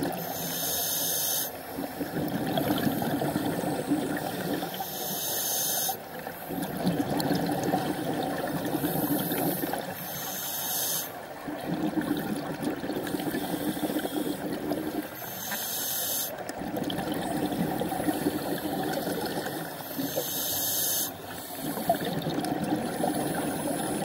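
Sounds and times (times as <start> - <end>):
exhaled bubbles: 1.7 - 4.8, 6.0 - 10.0, 11.2 - 15.2, 16.4 - 24.0
scuba regulator hissing: 10.1 - 11.1, 15.2 - 16.4, 19.9 - 22.0.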